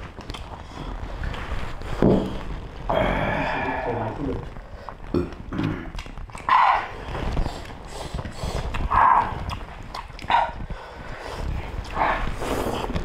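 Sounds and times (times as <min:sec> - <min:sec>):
chewing with wet lip-smacking: 0:05.9 - 0:06.5, 0:07.5 - 0:10.6.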